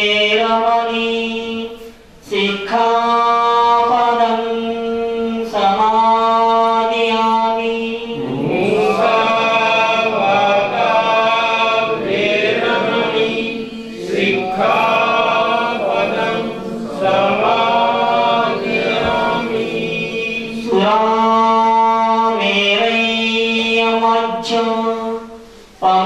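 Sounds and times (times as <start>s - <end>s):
congregation chanting: 0.0s - 26.0s
person chanting into microphone: 0.0s - 26.0s
steady drone tone: 3.8s - 22.4s.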